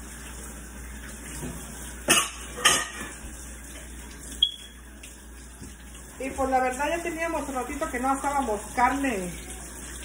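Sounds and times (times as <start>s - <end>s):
kitchenware clattering: 1.4s - 3.3s.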